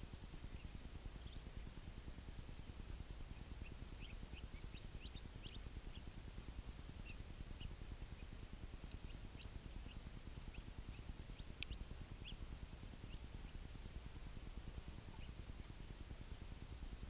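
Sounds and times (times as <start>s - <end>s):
steady low rumble: 0.0s - 17.0s
ducklings peeping: 3.3s - 14.0s, 14.8s - 16.0s.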